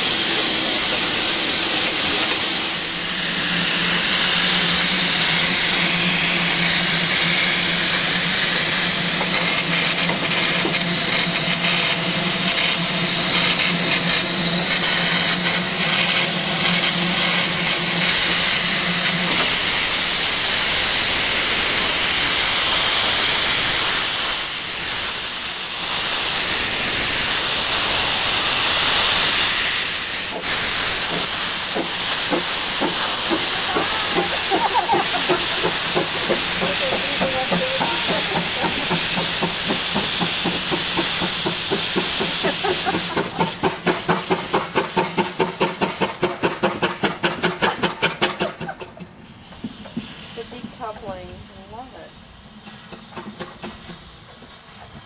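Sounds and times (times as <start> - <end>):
steam blowing from cylinder cocks: 0.0 - 55.0
steam locomotive hissing: 0.0 - 55.0.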